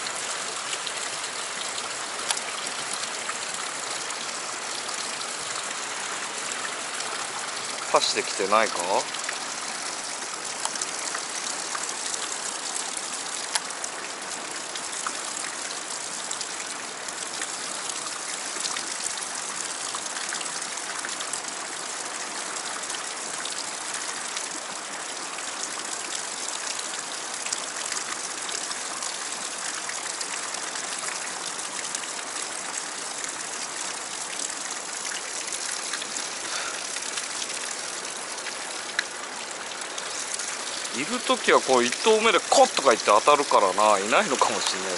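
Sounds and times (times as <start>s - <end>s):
river rushing over rocks: 35.1s - 44.9s.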